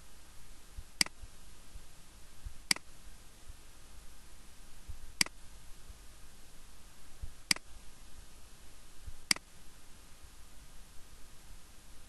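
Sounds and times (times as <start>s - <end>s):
low hiss: 0.0s - 12.0s
computer mouse clicks: 2.7s - 2.9s, 5.2s - 5.4s.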